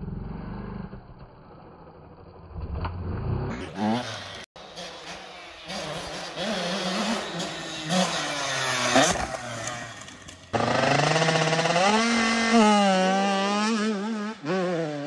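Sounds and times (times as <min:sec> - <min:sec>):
dirt bike engines revving: 0:00.0 - 0:15.0.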